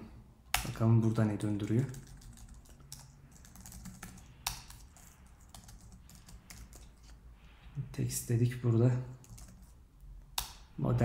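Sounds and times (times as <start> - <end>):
faint keyboard typing: 0.5 - 7.2, 9.1 - 10.5.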